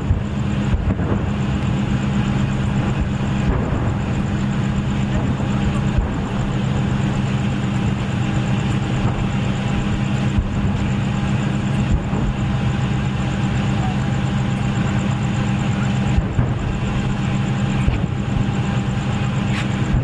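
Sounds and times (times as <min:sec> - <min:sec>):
dull low thumps: 0:00.0 - 0:13.6, 0:14.2 - 0:20.0
low engine drone: 0:00.0 - 0:20.0.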